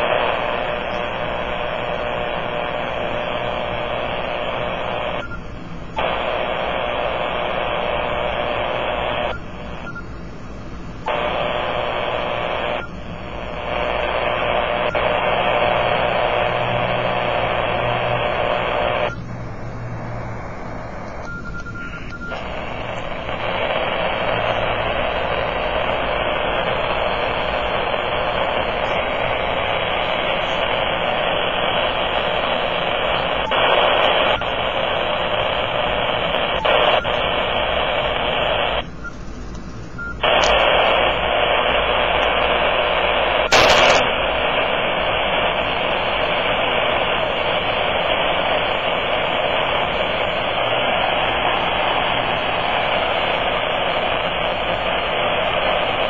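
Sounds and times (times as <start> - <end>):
radio interference hiss: 0.0 - 56.0
short sharp crackle: 43.4 - 44.7.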